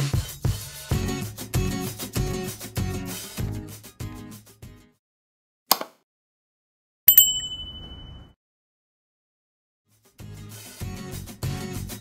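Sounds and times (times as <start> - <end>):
background music with beat: 0.0 - 4.5, 10.2 - 12.0.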